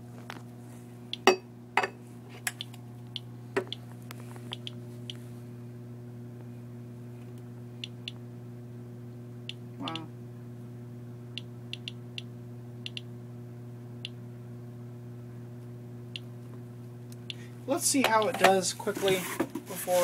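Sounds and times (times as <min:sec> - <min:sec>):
steady low hum: 0:00.0 - 0:20.0
geiger counter clicks: 0:04.5 - 0:05.2, 0:09.5 - 0:10.1, 0:11.4 - 0:13.1.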